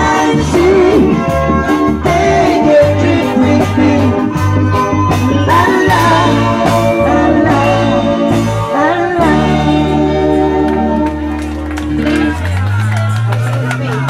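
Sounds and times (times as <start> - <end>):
person singing: 0.0 - 11.1
rock band over loudspeakers: 0.0 - 14.0.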